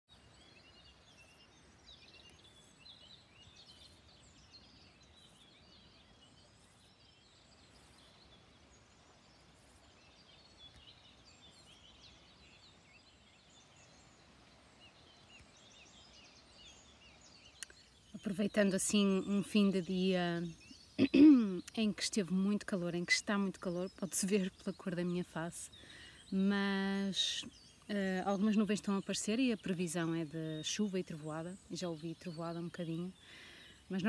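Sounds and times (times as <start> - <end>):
low steady hush: 0.1 - 34.0
small birds chirping: 0.1 - 34.0.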